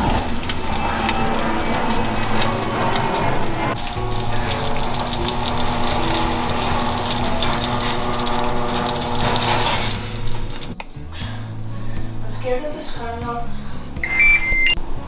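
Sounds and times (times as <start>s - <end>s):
pudding bubbling and sizzling: 0.0s - 10.8s
background music with low notes: 0.0s - 15.0s.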